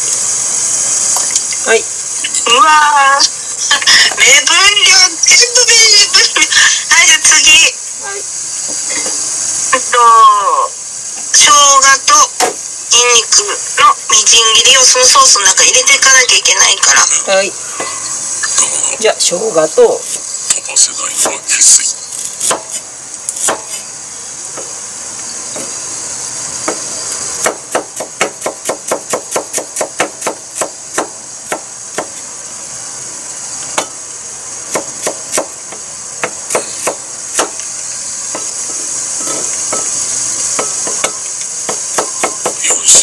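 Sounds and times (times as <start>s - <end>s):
steady hiss: 0.0s - 43.0s
knife chopping on wooden board: 22.4s - 23.8s, 27.4s - 32.2s, 36.2s - 37.6s, 40.6s - 42.8s.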